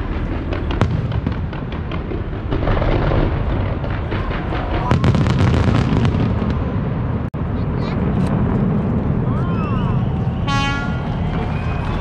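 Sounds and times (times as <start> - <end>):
fireworks crackling: 0.0 - 7.2
fireworks booming: 0.0 - 7.4.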